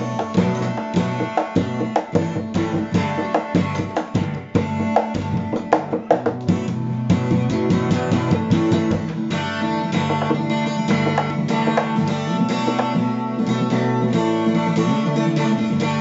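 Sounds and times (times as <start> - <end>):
plucked notes over low notes: 0.0 - 16.0.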